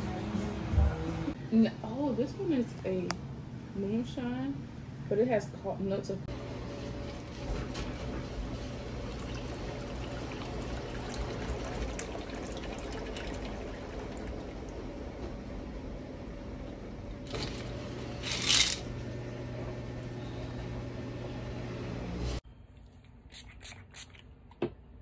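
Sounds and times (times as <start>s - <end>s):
liquid being poured: 8.9s - 15.0s.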